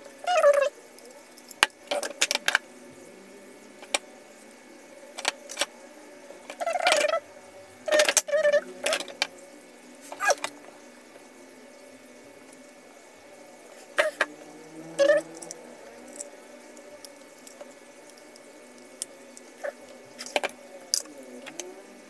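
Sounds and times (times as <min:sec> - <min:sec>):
objects clicking and knocking on bench: 0:20.2 - 0:21.7.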